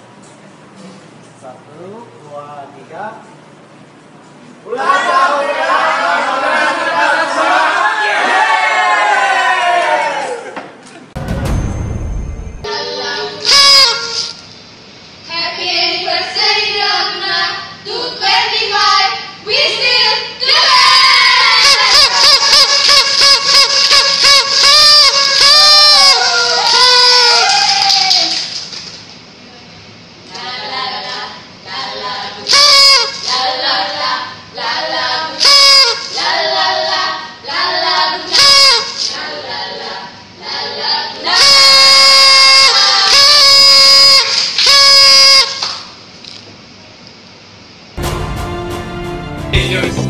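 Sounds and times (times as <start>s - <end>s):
loud high call: 20.6s - 28.5s, 41.2s - 45.8s
group of women singing: 30.3s - 32.5s, 33.2s - 35.4s, 36.1s - 38.4s, 39.1s - 41.4s.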